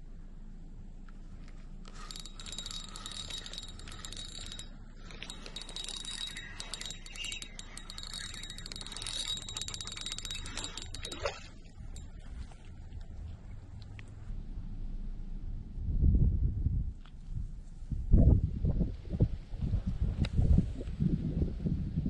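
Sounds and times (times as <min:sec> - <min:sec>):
fishing reel clicking: 0:01.8 - 0:12.1.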